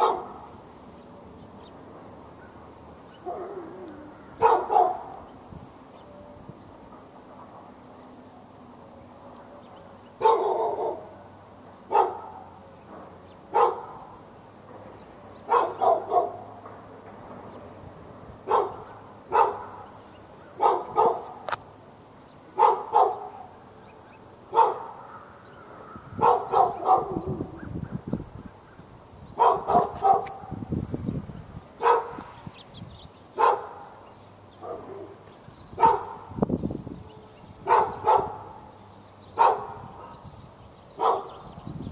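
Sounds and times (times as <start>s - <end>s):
dog barking: 0.0s - 0.4s, 3.2s - 3.8s, 4.4s - 5.2s, 10.2s - 11.2s, 11.9s - 12.6s, 13.5s - 14.2s, 15.5s - 16.5s, 18.5s - 19.9s, 20.6s - 21.4s, 22.6s - 23.5s, 24.5s - 25.3s, 26.2s - 27.4s, 29.4s - 30.6s, 31.8s - 32.2s, 33.4s - 33.9s, 34.6s - 35.2s, 35.8s - 36.2s, 37.6s - 38.7s, 39.4s - 40.2s, 41.0s - 41.4s.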